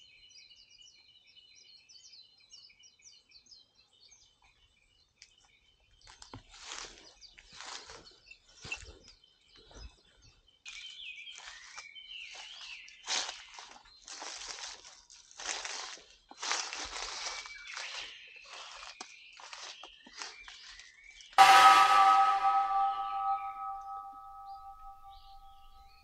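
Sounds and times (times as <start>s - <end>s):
rustling and crunching: 12.4s - 20.8s
bird chirps: 21.4s - 25.9s.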